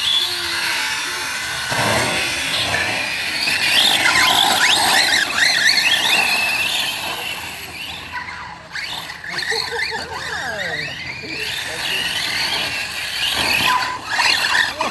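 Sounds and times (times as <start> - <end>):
rc buggy motors whining: 0.0 - 14.9.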